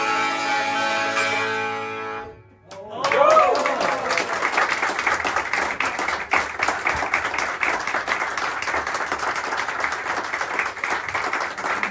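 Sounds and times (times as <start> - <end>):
audience applause: 2.7 - 11.9.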